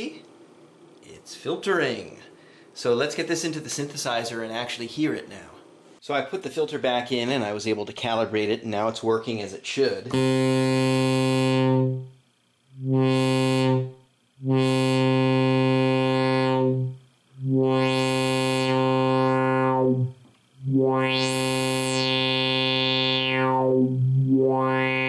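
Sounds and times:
buzzy synthesizer note: 0:10.1 - 0:25.0
resonant filter sweep: 0:12.8 - 0:25.0.

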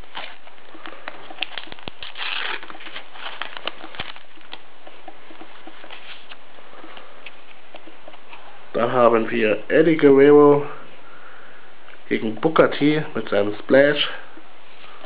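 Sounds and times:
wrapper ripping: 0:00.0 - 0:04.7
wrapper crackling: 0:00.0 - 0:06.4.

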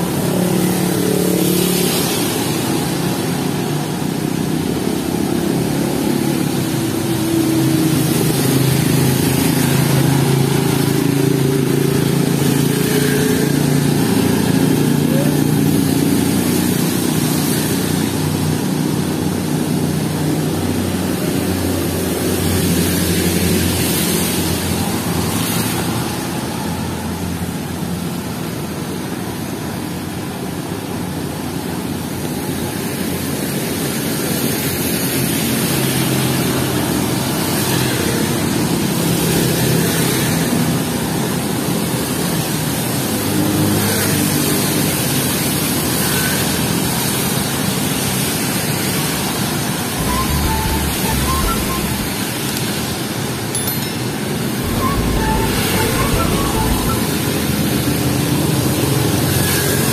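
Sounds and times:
heavy rain: 0:00.0 - 0:28.9
vehicles passing on wet road: 0:00.0 - 0:53.2, 0:54.6 - 0:59.9.

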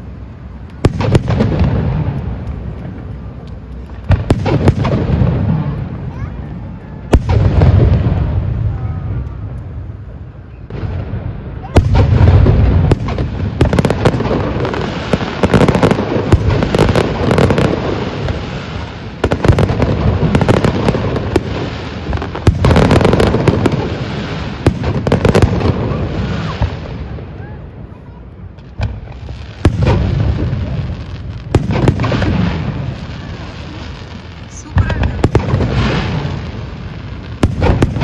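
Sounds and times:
firework crackling: 0:00.0 - 0:38.0
firework booms: 0:00.8 - 0:03.2, 0:03.8 - 0:38.0.

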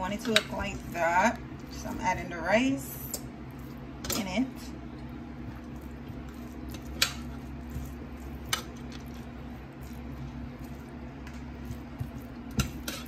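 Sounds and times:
steady low hum: 0:00.0 - 0:13.0
spatula stirring rice in skillet: 0:05.0 - 0:13.0.

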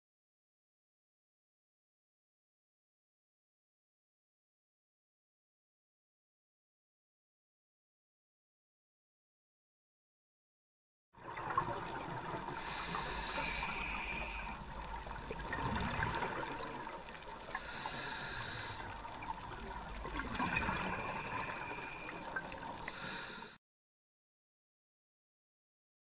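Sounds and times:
scuba exhale bubbling: 0:11.2 - 0:23.6
underwater water noise: 0:11.2 - 0:23.6.

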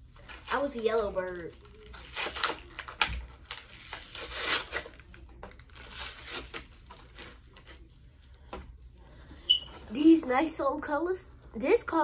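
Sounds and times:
plastic packaging tearing and crinkling: 0:00.1 - 0:07.9.

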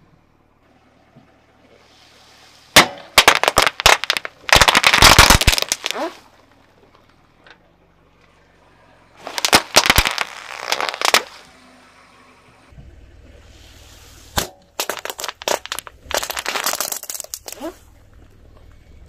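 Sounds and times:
firecrackers popping: 0:02.8 - 0:06.2, 0:09.2 - 0:11.4, 0:14.4 - 0:17.8
loud firecracker crack: 0:02.8 - 0:06.2, 0:09.2 - 0:11.4, 0:14.4 - 0:17.8
low rumble: 0:06.2 - 0:19.0.

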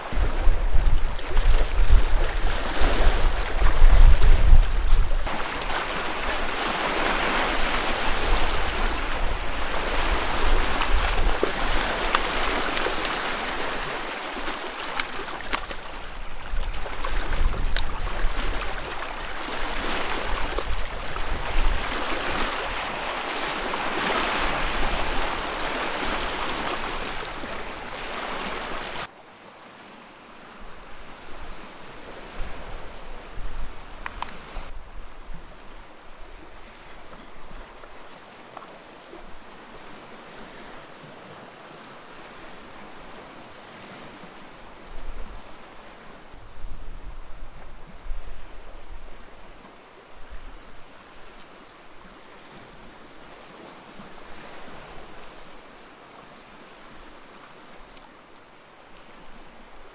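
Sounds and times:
wind buffeting microphone: 0:00.0 - 0:12.8, 0:15.8 - 0:23.0, 0:31.0 - 0:37.7
waves lapping against rocks: 0:00.0 - 0:29.1, 0:29.7 - 0:59.9.

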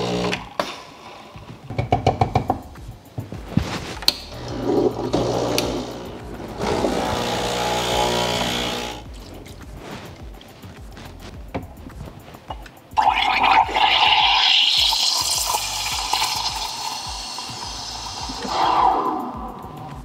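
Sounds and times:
espresso machine pump running: 0:00.0 - 0:00.4, 0:04.4 - 0:09.0
background music: 0:00.0 - 0:20.0.

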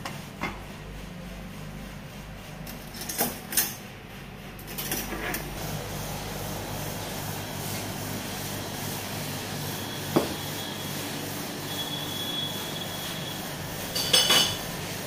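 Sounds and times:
shop background noise: 0:04.5 - 0:15.0
metal spoons clattering on glass bowl: 0:14.0 - 0:14.6.

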